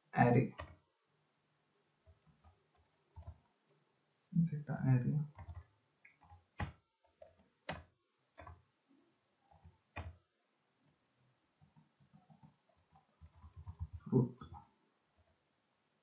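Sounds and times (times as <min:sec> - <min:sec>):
typing on computer keyboard: 0:00.5 - 0:00.8, 0:02.0 - 0:03.4, 0:05.3 - 0:08.6, 0:11.6 - 0:14.6.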